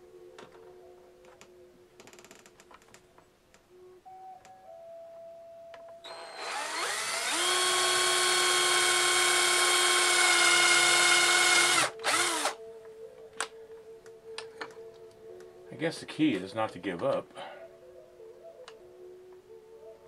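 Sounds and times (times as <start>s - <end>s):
cordless drill whining: 6.0s - 12.6s.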